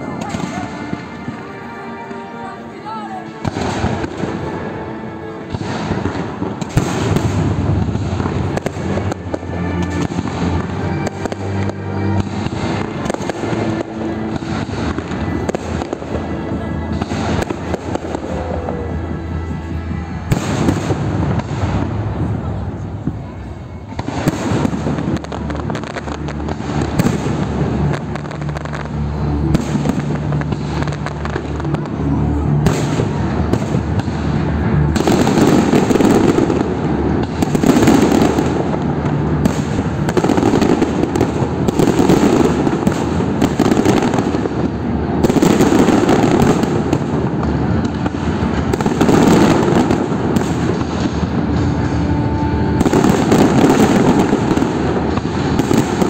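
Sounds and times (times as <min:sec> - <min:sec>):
fireworks booming and crackling: 0:00.0 - 0:56.0
music: 0:00.0 - 0:56.0.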